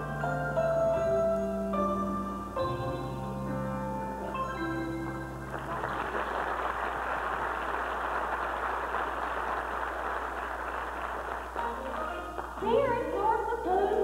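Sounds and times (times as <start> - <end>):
audience applauding: 5.5 - 12.6.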